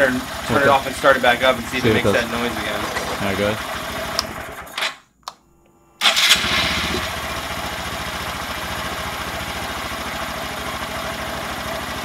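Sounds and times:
motorcycle engine starting and idling: 6.0 - 12.0.

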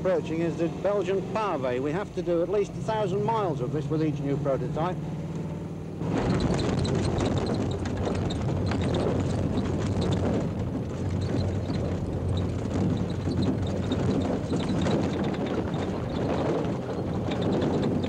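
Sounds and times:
engine hum: 0.0 - 18.0.

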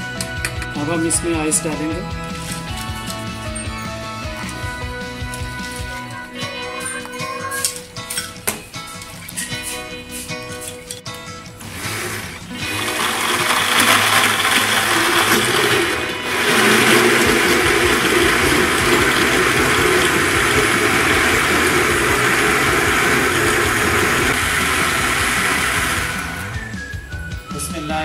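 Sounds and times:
electric blender running: 11.6 - 27.0.

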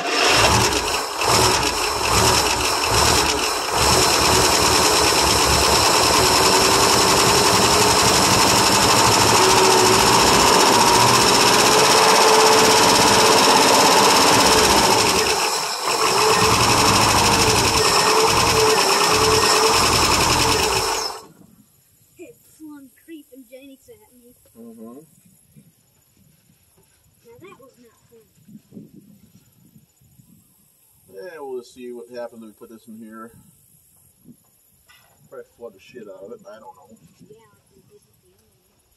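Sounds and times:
engine cranking: 0.0 - 21.3
engine running steadily: 0.0 - 21.3.

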